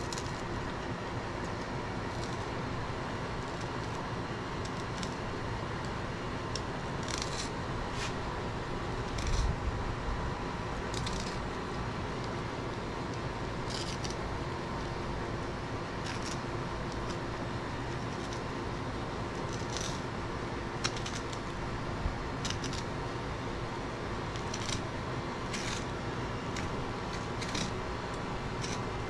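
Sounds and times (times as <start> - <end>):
knife scraping fish scales: 25.5 - 25.9, 27.2 - 27.8.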